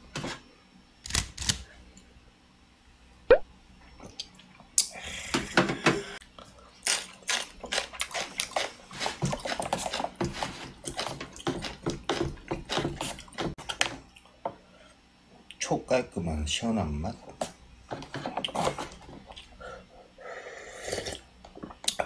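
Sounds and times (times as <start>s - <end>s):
chopsticks stirring noodles: 7.3s - 13.6s.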